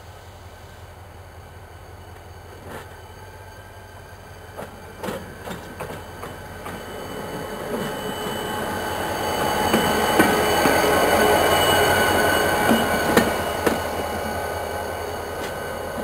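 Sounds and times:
diesel locomotive engine running: 0:00.0 - 0:16.0
wheels clunking on track: 0:02.1 - 0:03.6, 0:04.5 - 0:08.7, 0:09.4 - 0:11.0, 0:12.6 - 0:14.2.

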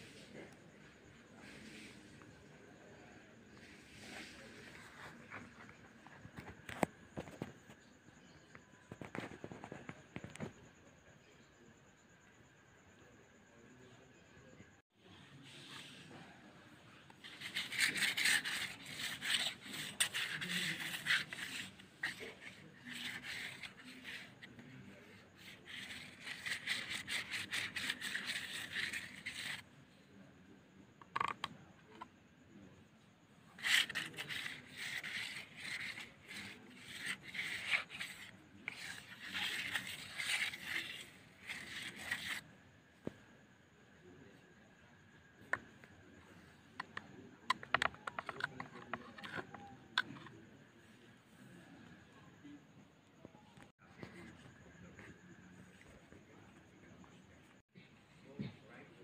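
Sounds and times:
painting tool scratching paper: 0:16.9 - 0:29.6, 0:33.5 - 0:42.4, 0:46.8 - 0:50.3.

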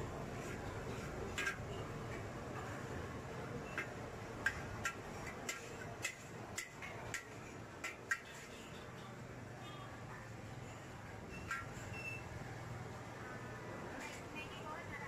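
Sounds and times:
metal utensils clinking on a wok: 0:00.5 - 0:02.8, 0:03.6 - 0:09.2, 0:11.3 - 0:12.0.

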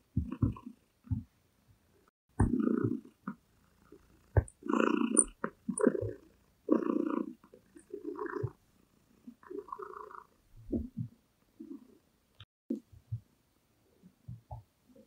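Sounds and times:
cat purring: 0:02.0 - 0:12.0.

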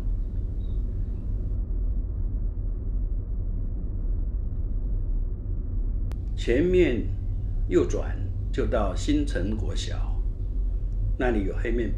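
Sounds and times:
car road and engine rumble: 0:06.1 - 0:11.9.

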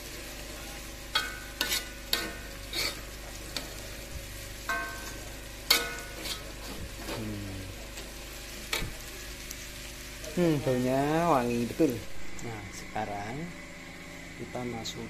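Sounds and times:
food sizzling in a wok: 0:00.0 - 0:15.0
metal spatula scraping a wok: 0:01.1 - 0:03.8, 0:04.7 - 0:07.3.

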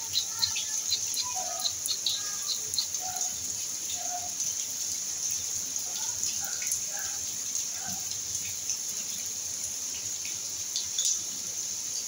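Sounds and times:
rain hiss: 0:00.0 - 0:12.0.

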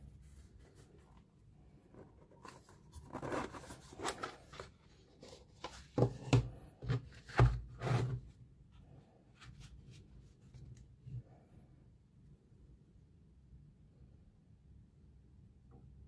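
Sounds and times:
box lid scraping: 0:01.8 - 0:08.3.

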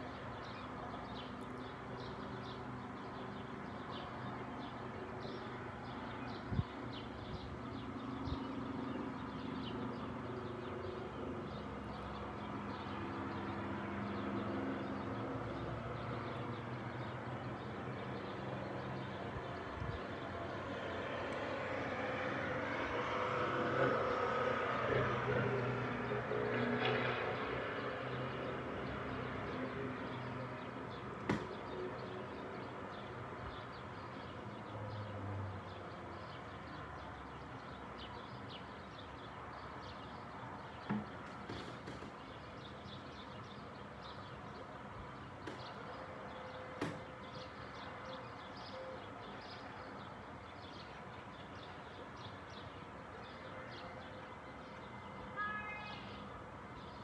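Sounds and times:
distant engine hum: 0:00.0 - 0:56.9.

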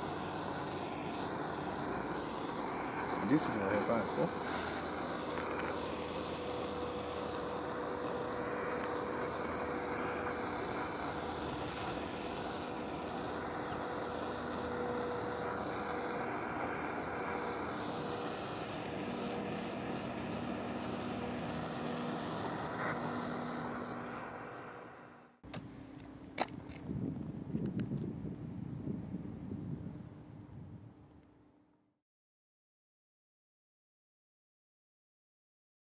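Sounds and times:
butane torch hissing: 0:00.0 - 0:25.4.

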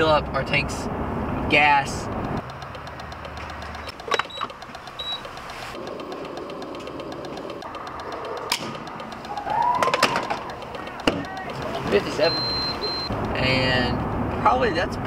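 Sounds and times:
fuel nozzle clicks: 0:02.1 - 0:14.2
fuel flowing through nozzle: 0:02.4 - 0:09.8.

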